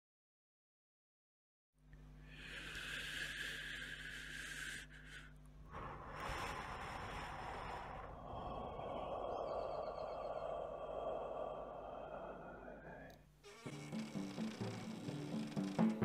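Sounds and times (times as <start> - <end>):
airy whooshing noise: 5.7 - 13.2.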